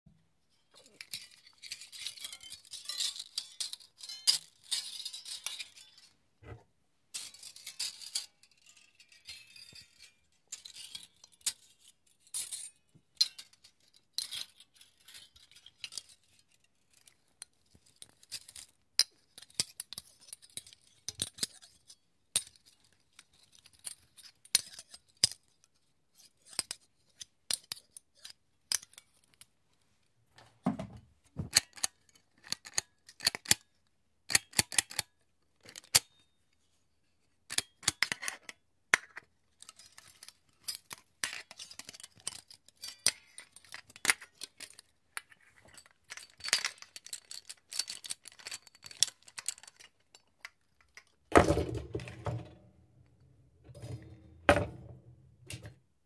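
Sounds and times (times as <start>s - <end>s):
iron pieces clinking and scraping: 53.6s - 55.8s.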